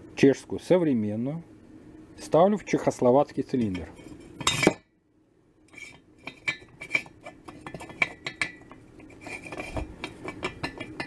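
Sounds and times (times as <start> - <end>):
metal liner clinking and scraping: 3.6 - 4.8, 5.7 - 11.0.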